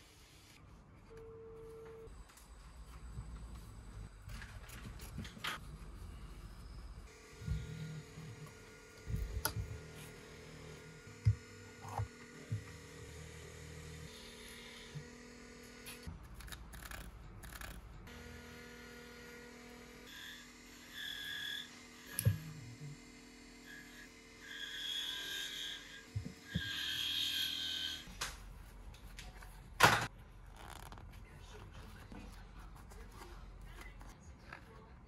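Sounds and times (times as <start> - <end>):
small electric motor humming: 7.0 - 16.1, 16.8 - 28.1.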